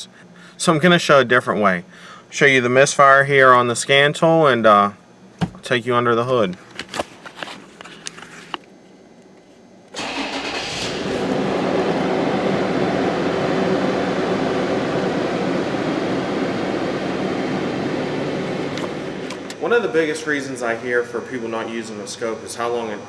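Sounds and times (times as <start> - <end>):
car engine starting and idling: 10.0 - 20.3.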